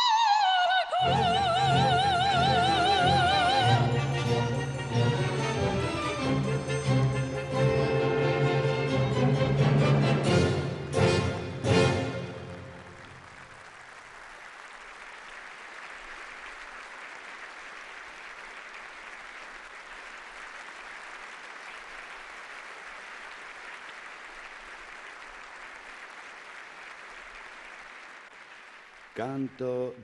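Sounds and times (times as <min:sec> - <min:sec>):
audience applauding: 0:11.8 - 0:30.0.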